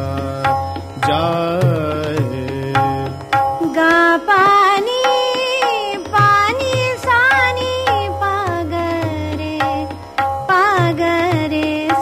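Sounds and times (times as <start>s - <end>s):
person singing classical vocals: 0.0s - 9.8s
tabla: 0.0s - 12.0s.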